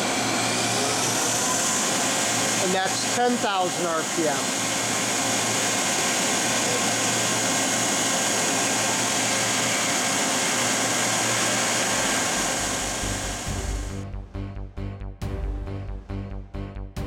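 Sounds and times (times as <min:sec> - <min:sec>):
machine spindle whining: 0:00.0 - 0:14.0
music: 0:12.9 - 0:17.0.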